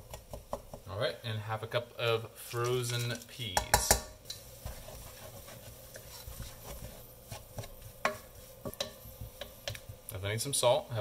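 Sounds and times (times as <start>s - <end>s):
wooden spoon scraping a pan: 2.4s - 10.1s.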